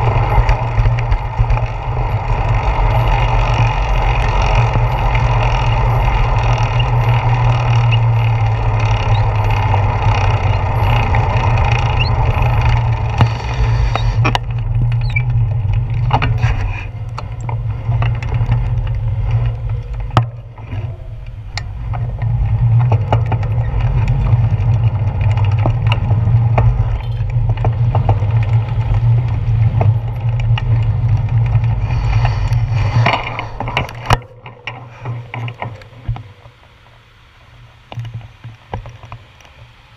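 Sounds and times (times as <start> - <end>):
bicycle clicks and rattles: 0.0 - 39.8
wind and road rumble: 0.0 - 39.9
tyre hiss: 13.2 - 14.2.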